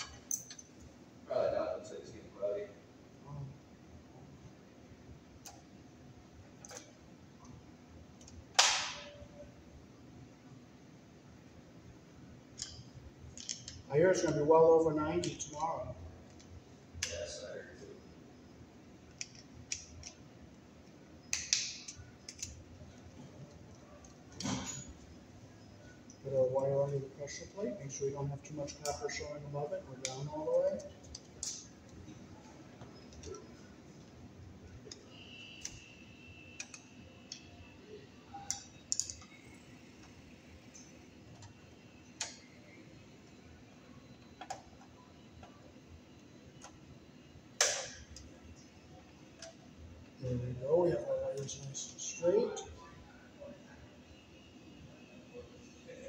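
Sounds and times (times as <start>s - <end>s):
wire strippers clicking and snipping: 6.6s - 7.0s, 12.5s - 14.4s, 19.1s - 20.2s, 21.3s - 22.6s, 30.0s - 32.1s, 36.6s - 37.5s, 38.4s - 39.4s, 42.2s - 42.5s, 47.6s - 48.3s.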